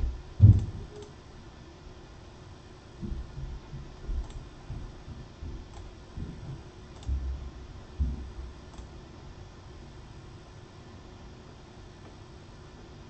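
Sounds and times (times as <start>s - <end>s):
dull low thuds: 0.0s - 0.9s
computer mouse clicking: 4.2s - 4.4s, 5.7s - 5.9s, 6.9s - 7.2s, 8.7s - 8.9s.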